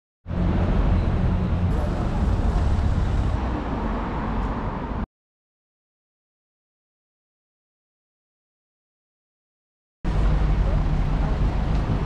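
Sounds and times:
bus and traffic noise: 0.3 - 5.1, 10.1 - 12.0.

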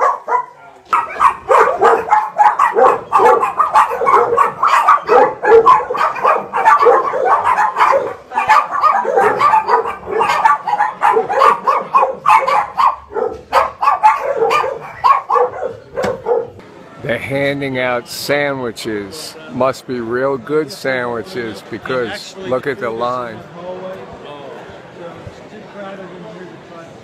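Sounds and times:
many dogs barking: 0.0 - 16.6.

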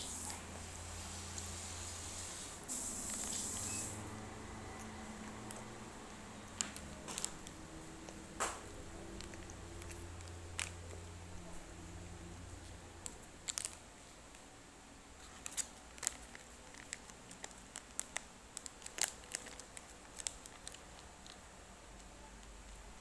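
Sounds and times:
plastic wrapper crinkling: 6.4 - 11.1, 13.0 - 14.4, 15.2 - 21.5.

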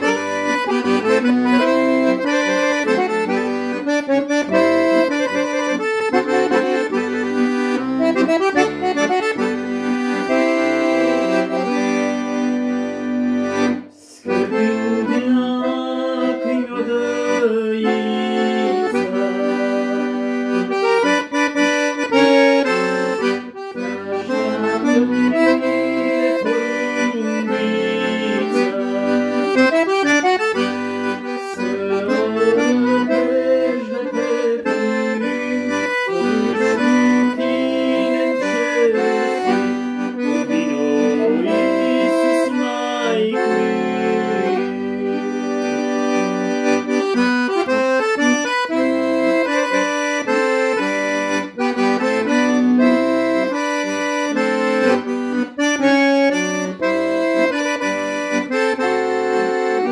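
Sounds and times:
piano accordion melody: 0.0 - 59.9.

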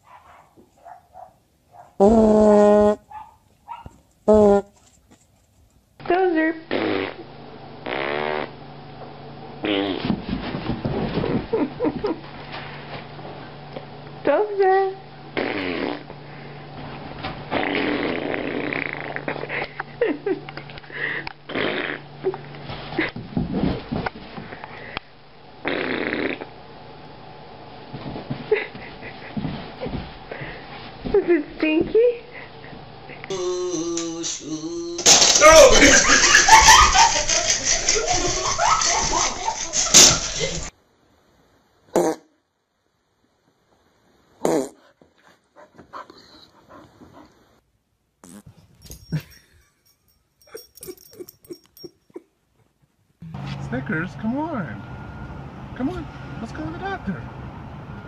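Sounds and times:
dog sniffing: 44.8 - 47.4.

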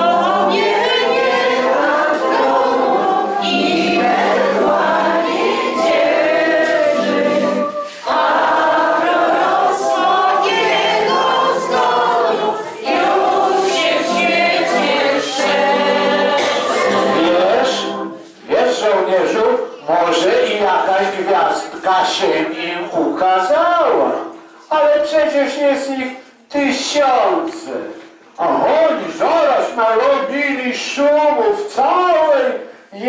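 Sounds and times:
choir singing: 0.0 - 19.2.

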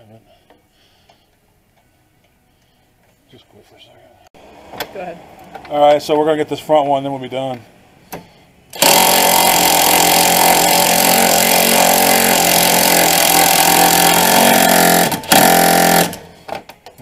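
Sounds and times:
impact wrench hammering: 8.1 - 16.8.

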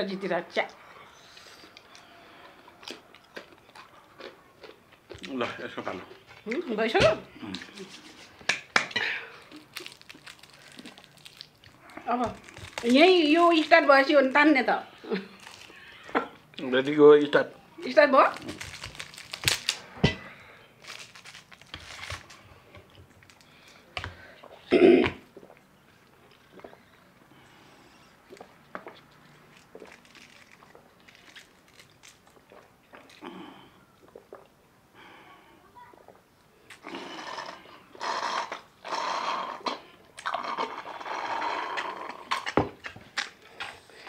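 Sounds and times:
plastic wrappers tearing: 9.4 - 13.8, 15.4 - 15.9, 18.2 - 19.9, 20.8 - 22.5, 29.5 - 32.4
slurping through a straw: 36.8 - 42.6.

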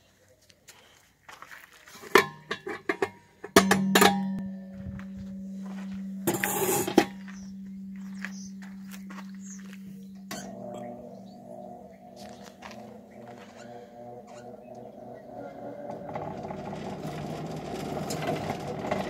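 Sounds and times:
motor humming: 5.2 - 19.0.

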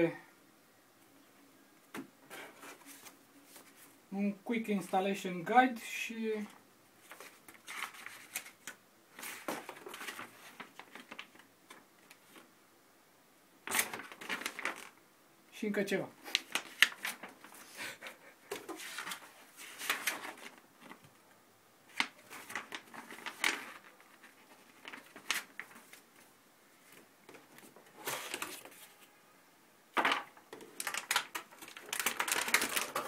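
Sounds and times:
paper rustling and crackling: 2.3 - 4.0, 7.0 - 12.5, 13.6 - 15.0, 16.2 - 21.2, 21.9 - 29.1, 30.0 - 33.0.

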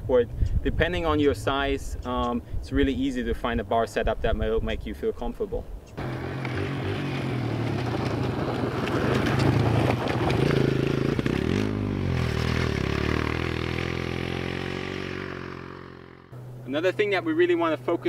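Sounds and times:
dirt bike engine passing by: 6.0 - 16.6.

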